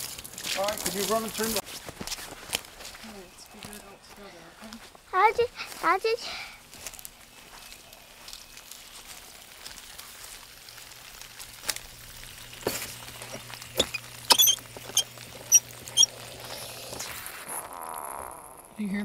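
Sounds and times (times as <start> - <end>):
water flowing through hose: 0.0 - 1.8, 8.1 - 18.8
valve handle squeaking: 13.2 - 16.1.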